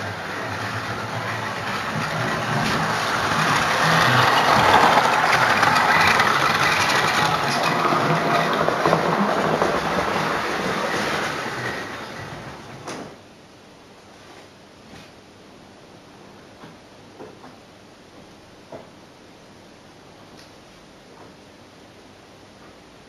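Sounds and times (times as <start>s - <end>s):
model train wheels and motor rumbling: 0.0s - 13.2s.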